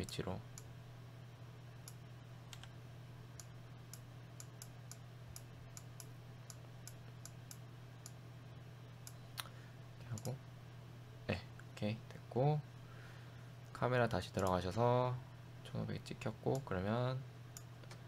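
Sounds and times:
low electrical hum: 0.0 - 18.0
computer mouse clicks: 1.8 - 2.7, 14.4 - 14.6.

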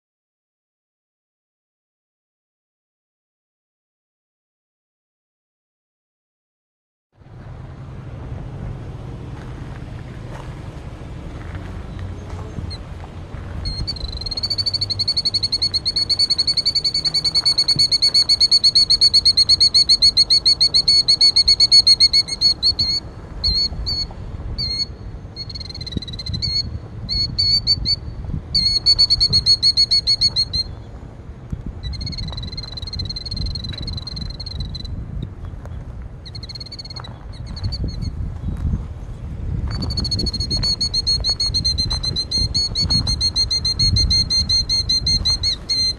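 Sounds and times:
bird trilling alarm call: 12.5 - 12.9, 13.6 - 30.9, 31.8 - 35.0, 36.2 - 38.2, 39.7 - 45.9.

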